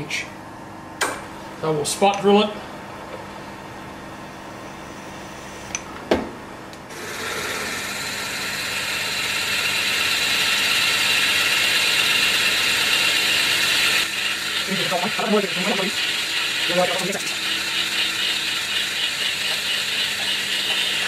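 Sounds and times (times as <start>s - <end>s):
drill grinding into metal: 6.9s - 21.0s
milling machine spindle running: 6.9s - 21.0s.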